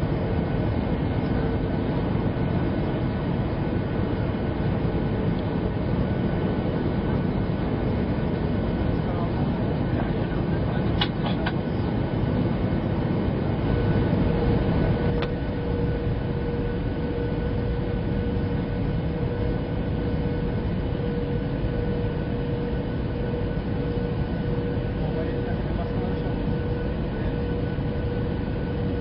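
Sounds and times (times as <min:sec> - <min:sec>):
aircraft engine rumble: 0:00.0 - 0:29.0
mid-pitched whine: 0:00.0 - 0:29.0.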